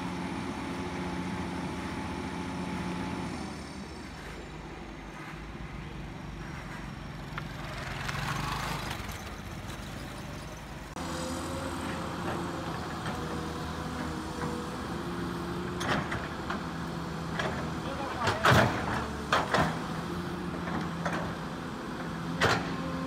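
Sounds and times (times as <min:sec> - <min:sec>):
excavator diesel engine running: 0:00.0 - 0:23.0
excavator bucket digging mud: 0:17.3 - 0:19.9.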